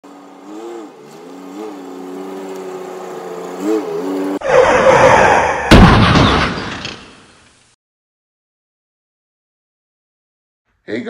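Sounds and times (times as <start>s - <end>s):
truck engine running: 0.0s - 4.4s
heavy boom: 5.7s - 7.0s.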